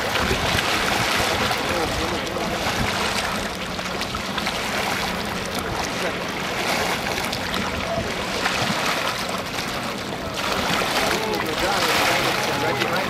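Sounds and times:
wind on microphone: 0.0s - 3.4s
water lapping and splashing: 0.0s - 13.0s.

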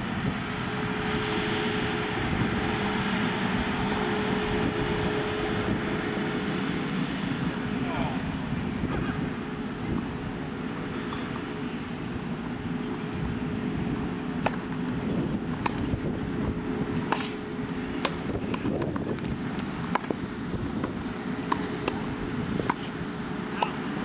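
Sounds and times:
tennis balls struck by rackets: 14.4s - 16.0s, 17.0s - 19.0s, 19.6s - 20.2s, 20.8s - 23.8s.

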